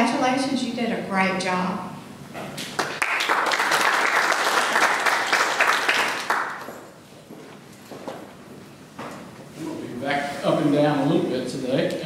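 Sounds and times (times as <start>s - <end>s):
audience applauding: 2.7s - 6.9s.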